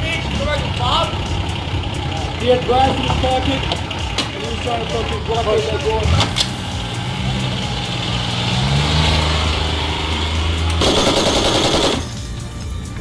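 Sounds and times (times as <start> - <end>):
engine running: 0.0 - 13.0
machine gun burst: 10.8 - 12.2.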